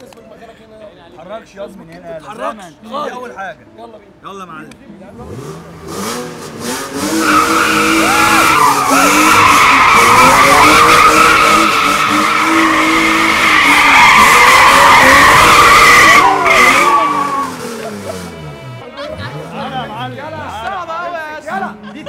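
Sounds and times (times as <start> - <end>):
car engine revving: 5.1 - 20.6
tyres squealing: 7.1 - 18.3.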